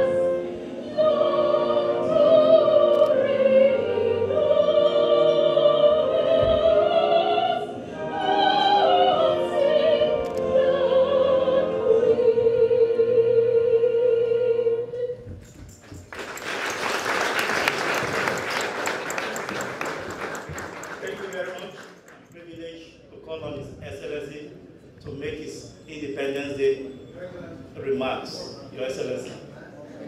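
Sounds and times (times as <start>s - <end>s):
soprano singing opera: 0.0s - 15.4s
audience applause: 16.0s - 22.2s.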